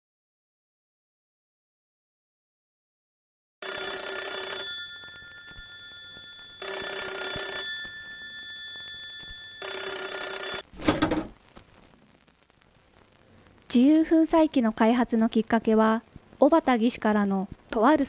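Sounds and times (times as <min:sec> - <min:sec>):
old telephone bell ringing: 0:03.6 - 0:10.7.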